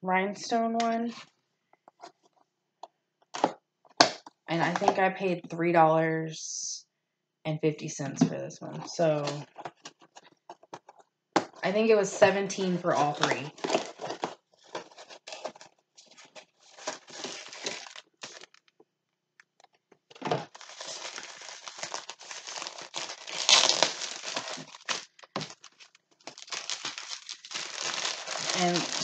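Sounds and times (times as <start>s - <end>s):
plastic packaging crinkling: 13.0s - 18.8s, 20.1s - 29.0s.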